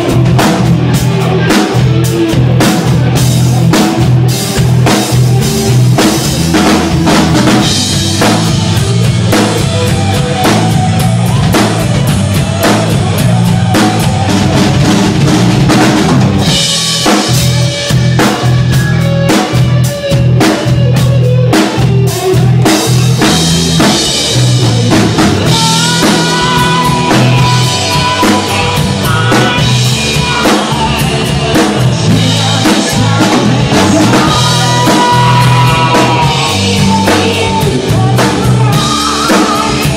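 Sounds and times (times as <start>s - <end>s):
drum hits: 0.0s - 19.8s
low bass notes: 0.0s - 39.9s
rock band music: 0.0s - 39.9s.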